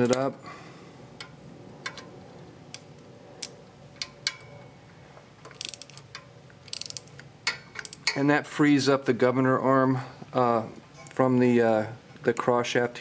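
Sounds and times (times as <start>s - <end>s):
ratchet wrench clicking: 5.5s - 8.2s.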